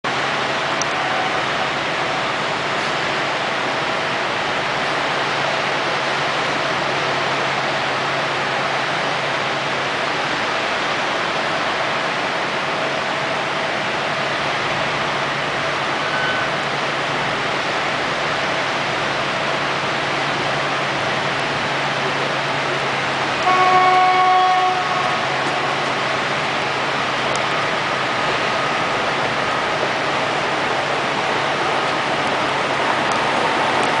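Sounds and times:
horn sounding: 23.4 - 26.0.

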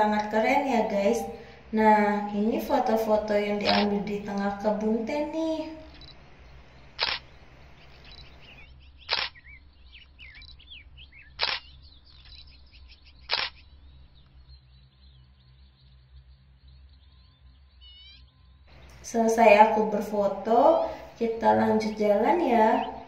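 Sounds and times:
birds chirping faintly: 0.0 - 23.0
camera shutter clicks: 3.6 - 3.9, 7.0 - 7.4, 9.1 - 9.4, 11.4 - 11.7, 13.2 - 13.6.

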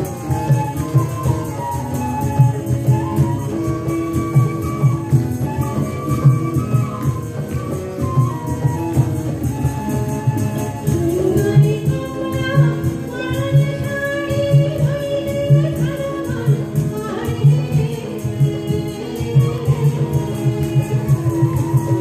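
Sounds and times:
band playing: 0.0 - 22.0
woman singing: 10.4 - 22.0.

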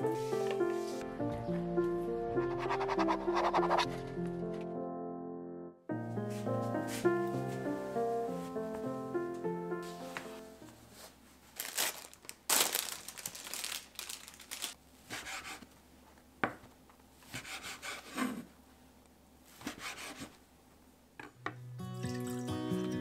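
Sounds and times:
cloth rustling: 9.8 - 14.8.

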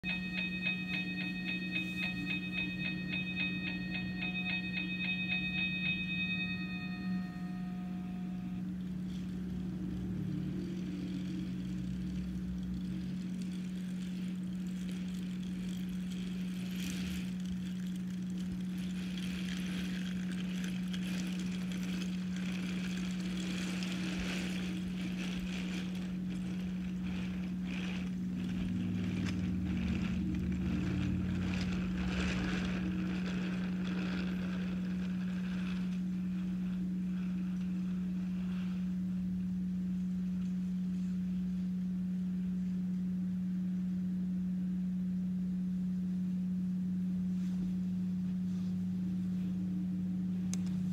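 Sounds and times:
electric motor hum: 0.0 - 45.0
toy trains clicking and rattling: 10.3 - 36.7.

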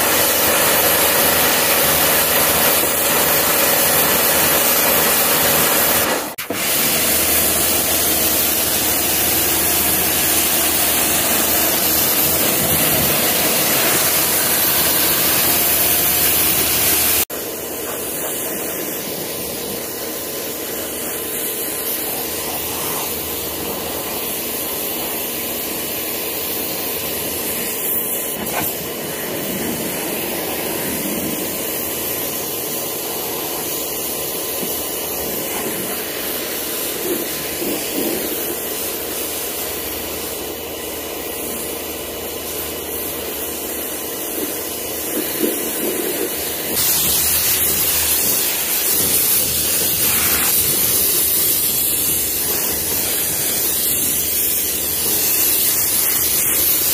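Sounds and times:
pressure washer spraying water: 0.0 - 56.9.

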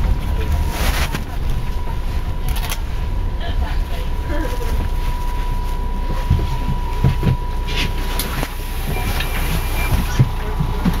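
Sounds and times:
bus engine and road rumble: 0.0 - 11.0
thumps and knocks in cabin: 6.2 - 7.5.

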